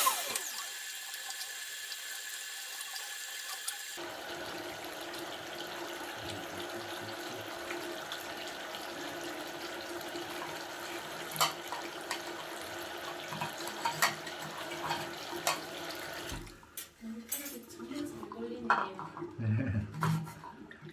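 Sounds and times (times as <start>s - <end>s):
drain cleaning machine humming: 0.0s - 16.6s.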